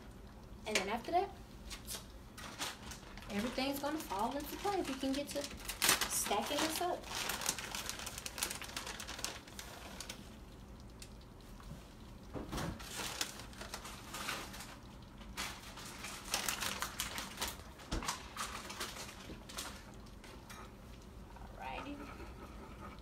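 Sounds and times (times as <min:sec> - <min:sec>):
plastic bag crinkling: 0:01.7 - 0:11.2, 0:12.8 - 0:20.2.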